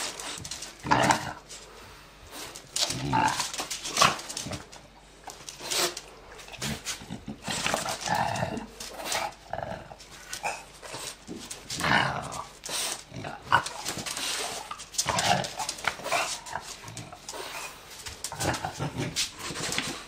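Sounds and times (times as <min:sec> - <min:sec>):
dog vocalizing while playing: 0:05.5 - 0:19.9.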